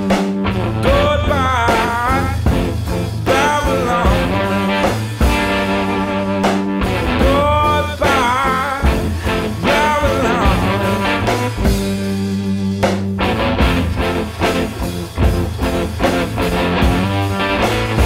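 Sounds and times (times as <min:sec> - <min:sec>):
rock music with guitar: 0:00.0 - 0:18.0.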